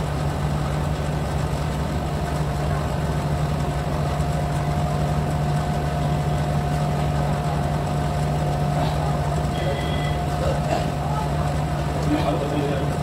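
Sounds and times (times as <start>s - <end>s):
low machine hum: 0.0s - 13.0s
high steady tone: 9.4s - 10.4s.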